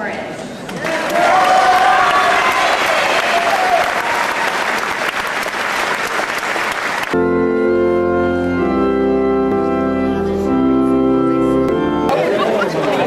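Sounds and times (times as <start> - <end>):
audience applauding: 0.7 - 7.2
sustained organ chords: 7.0 - 13.0.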